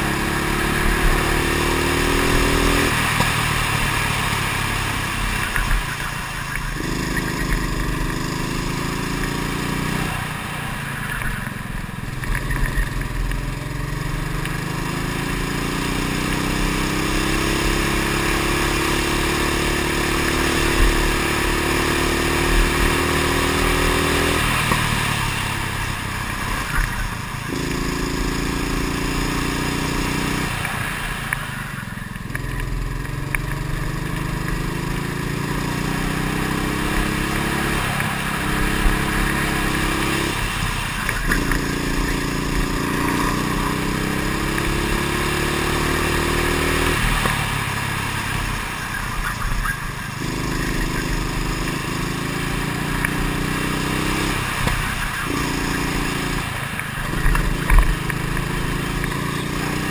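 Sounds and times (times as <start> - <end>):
go-kart engine revving: 0.0 - 59.9.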